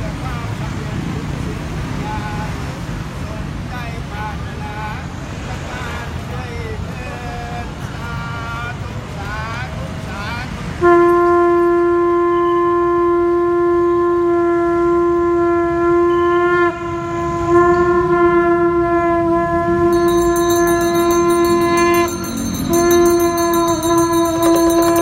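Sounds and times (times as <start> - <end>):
conch shell blasts: 10.8 - 25.0
small bell ringing rapidly: 19.9 - 25.0.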